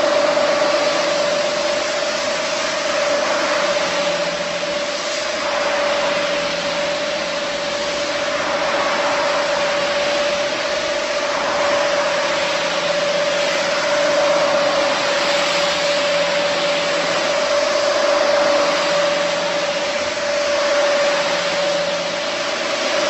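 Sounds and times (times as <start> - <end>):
floor scrubbing machine humming: 0.0 - 23.0.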